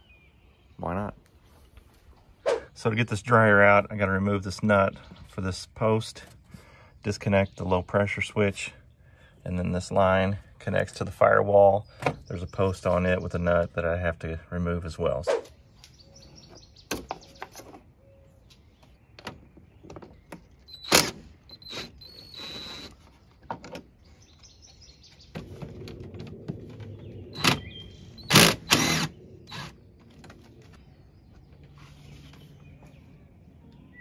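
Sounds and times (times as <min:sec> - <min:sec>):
impact driver running: 0:28.3 - 0:29.8.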